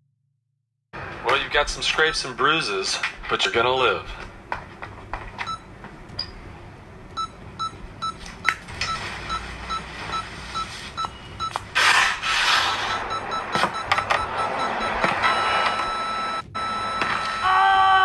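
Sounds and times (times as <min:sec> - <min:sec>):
heart monitor beeping: 0:05.4 - 0:06.4, 0:07.2 - 0:11.8, 0:12.6 - 0:17.6.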